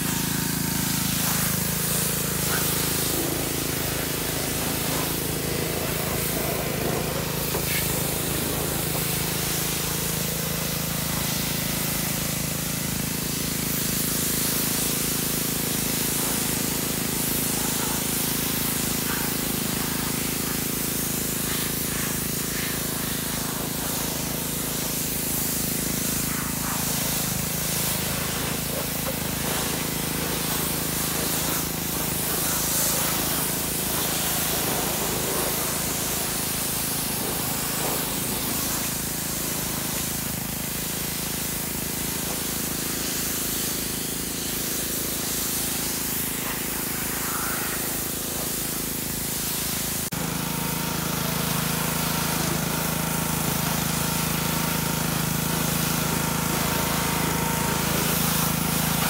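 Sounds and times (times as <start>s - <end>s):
pressure washer spraying car: 0.0s - 59.0s.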